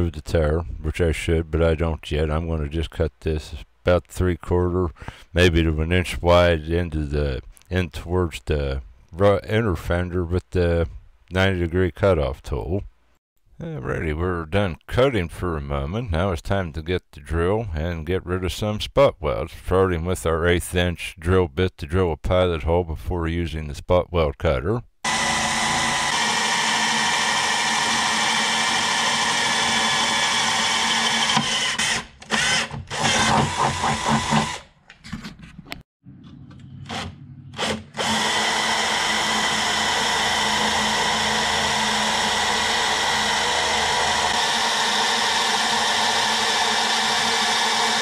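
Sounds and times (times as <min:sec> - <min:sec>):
drill drilling into sheet metal: 0:25.1 - 0:34.7, 0:37.6 - 0:48.0.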